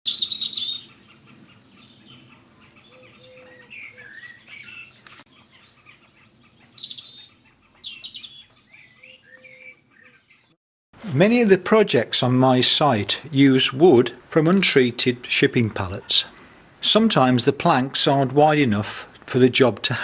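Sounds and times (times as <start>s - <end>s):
songbirds chirping and singing: 0.1s - 10.6s.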